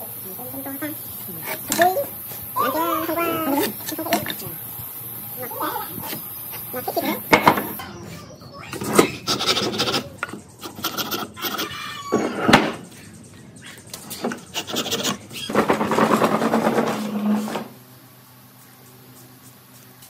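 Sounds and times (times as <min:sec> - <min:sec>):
wood scraping on wooden workbench: 0:14.1 - 0:17.8.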